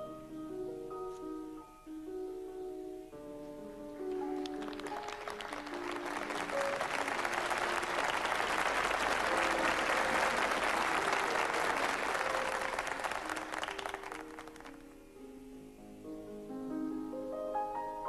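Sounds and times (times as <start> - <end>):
light background music: 0.0 - 18.0
audience applauding: 4.1 - 14.9.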